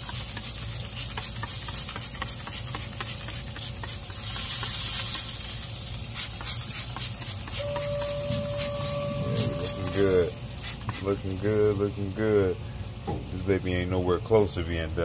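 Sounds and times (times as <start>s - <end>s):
hiss with small crackles: 0.0s - 15.0s
low steady hum: 7.2s - 15.0s.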